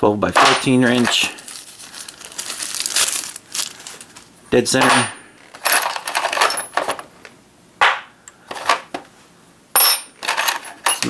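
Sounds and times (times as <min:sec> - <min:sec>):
metal tools clattering in toolbox: 0:00.4 - 0:01.4, 0:04.8 - 0:07.0, 0:08.5 - 0:08.9, 0:09.8 - 0:11.0.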